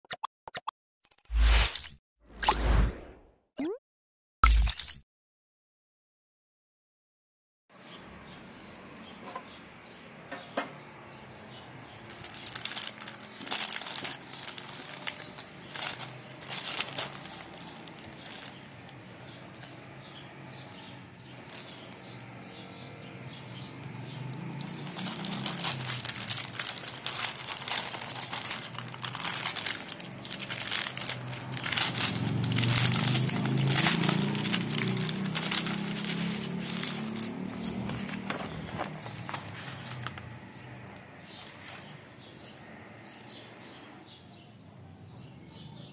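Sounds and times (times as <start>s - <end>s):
plastic bag crinkling: 11.9s - 19.6s, 24.2s - 40.4s.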